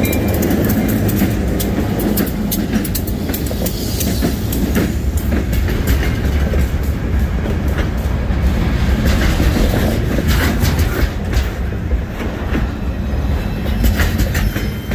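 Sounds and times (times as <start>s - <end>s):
freight train rumbling past: 0.0s - 14.9s
wheels clanking over rail joints: 0.0s - 14.9s.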